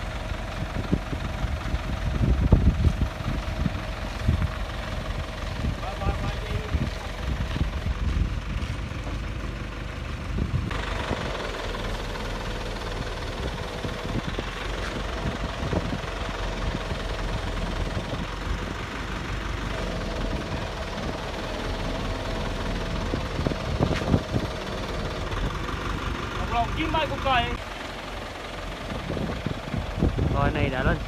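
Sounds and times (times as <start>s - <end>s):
diesel engine running steadily: 0.0s - 31.0s.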